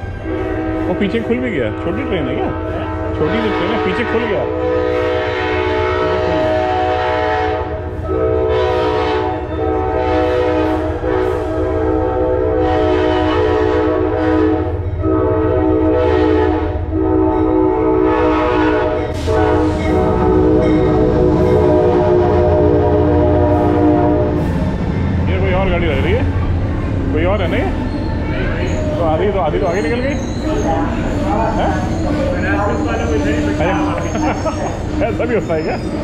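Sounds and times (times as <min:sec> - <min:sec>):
train horn blasts: 0:00.0 - 0:24.5
train engine rumble: 0:00.0 - 0:36.0.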